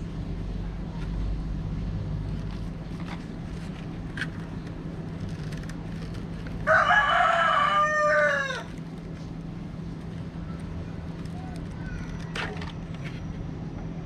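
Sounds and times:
plastic pots clicking: 0:02.4 - 0:06.8, 0:09.9 - 0:13.2
rooster crowing: 0:06.6 - 0:08.7.

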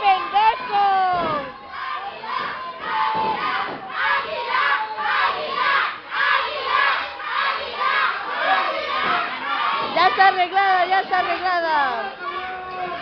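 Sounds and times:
crowd chanting and shouting: 0:00.0 - 0:13.0.

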